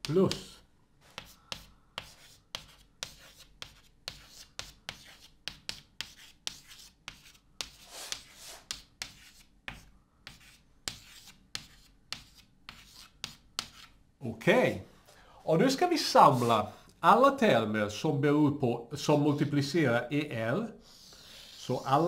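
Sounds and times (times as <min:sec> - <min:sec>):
chalk tapping and scratching on blackboard: 0:00.0 - 0:14.0, 0:20.9 - 0:22.0.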